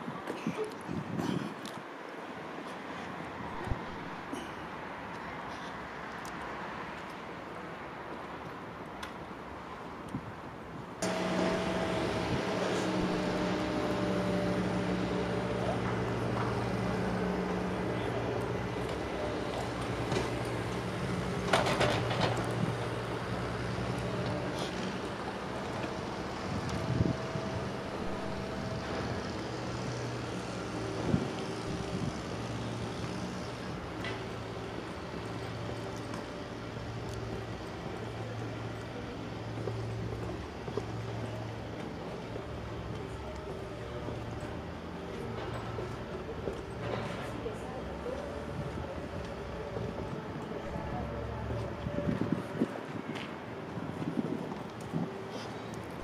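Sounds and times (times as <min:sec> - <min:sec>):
city traffic: 0:00.0 - 0:56.0
steady low drone: 0:11.0 - 0:45.9, 0:48.0 - 0:53.0.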